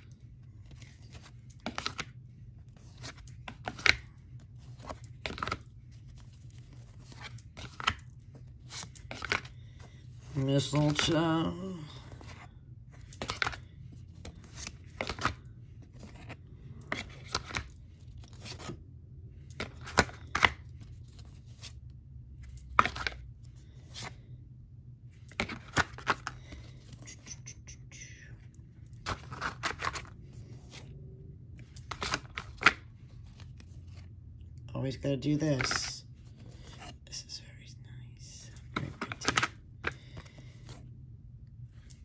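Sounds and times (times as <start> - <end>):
cards clicking and sliding: 0.0 - 11.4, 12.0 - 18.8, 19.4 - 21.8, 22.4 - 24.2, 25.2 - 27.6, 28.9 - 30.9, 31.6 - 34.1, 38.6 - 40.8.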